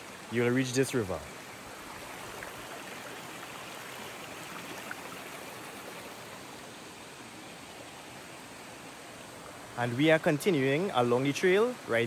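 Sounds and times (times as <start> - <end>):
river babbling over stones: 0.0 - 12.0.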